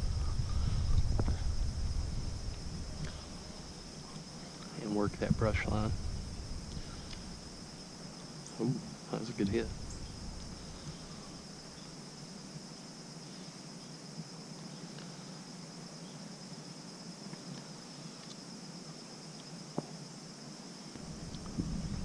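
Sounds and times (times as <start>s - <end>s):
insect chorus drone: 0.0s - 22.0s
faint ticks: 6.7s - 7.4s, 20.9s - 22.0s.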